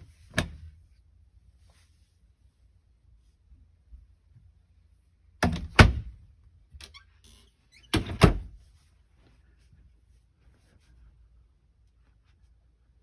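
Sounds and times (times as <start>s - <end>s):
wooden cabinet doors banging shut: 5.4s - 6.2s.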